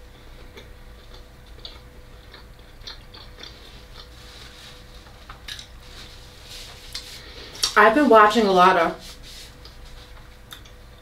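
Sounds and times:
faint steady hum: 0:00.0 - 0:11.0
chewing food: 0:00.1 - 0:05.8.

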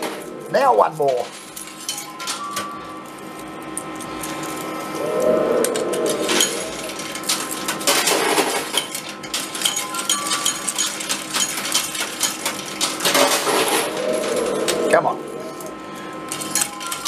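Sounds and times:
faint machine hum: 0:00.0 - 0:17.0
coins clinking and clattering: 0:01.1 - 0:05.0, 0:06.1 - 0:14.5, 0:16.2 - 0:17.0.

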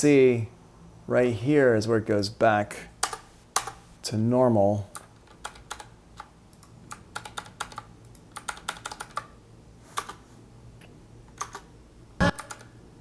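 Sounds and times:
keyboard keys clicking: 0:05.0 - 0:09.3, 0:11.3 - 0:11.7, 0:12.3 - 0:12.7.

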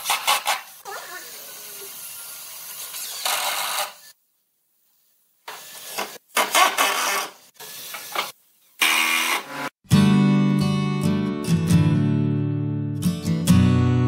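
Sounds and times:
impact driver driving screws: 0:06.0 - 0:07.4.

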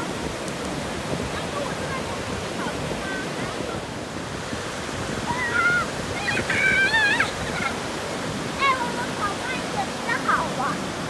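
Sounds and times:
surf breaking on beach: 0:00.0 - 0:11.0.

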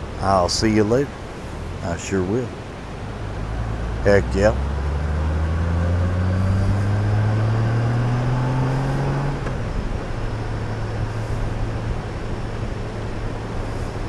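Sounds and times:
road noise: 0:00.0 - 0:14.0
motorcycle engine accelerating: 0:03.3 - 0:12.0.

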